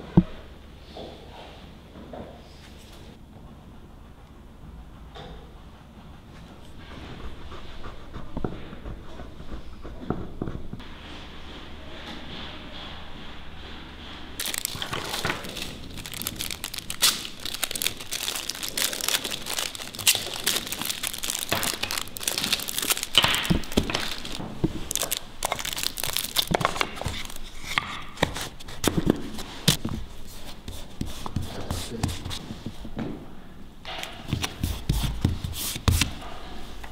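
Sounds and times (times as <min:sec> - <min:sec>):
plastic wrapping crinkling: 0:14.4 - 0:29.8.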